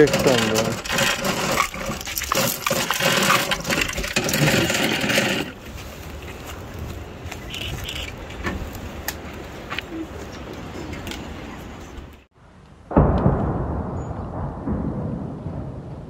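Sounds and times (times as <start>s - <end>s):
cartridge belt clinking and rattling: 0.0s - 5.6s.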